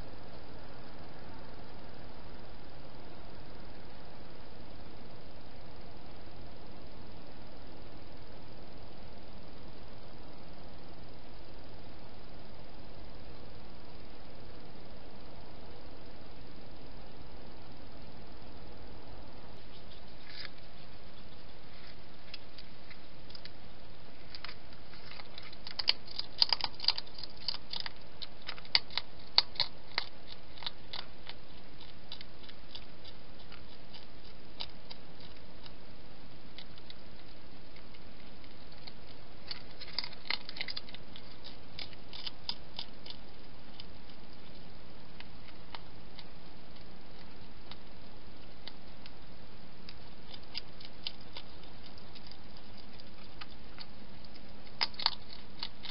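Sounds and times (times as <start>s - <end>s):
steady hiss: 0.0s - 55.9s
hedgehog clicking and crunching: 19.5s - 55.9s.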